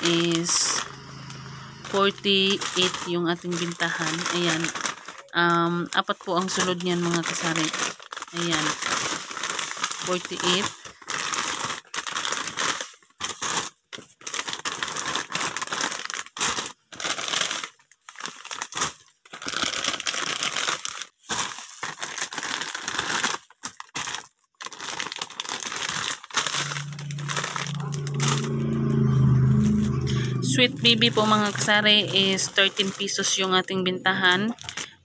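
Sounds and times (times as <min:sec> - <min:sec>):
low steady engine hum: 0:00.0 - 0:04.4, 0:26.5 - 0:34.4
plastic wrappers crinkling: 0:00.0 - 0:35.0.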